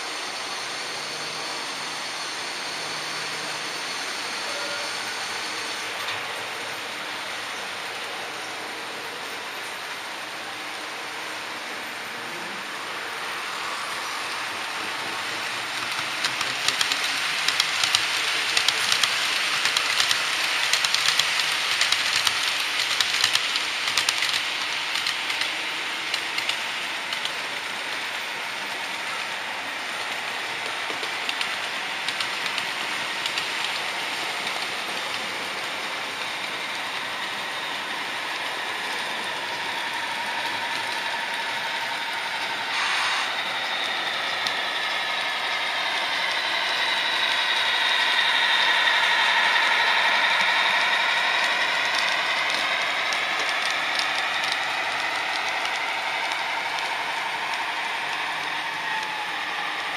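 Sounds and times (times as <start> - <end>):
model train motor whine: 0.0 - 59.9
model train wheels clicking: 12.8 - 59.9
rushing hiss: 36.2 - 59.9.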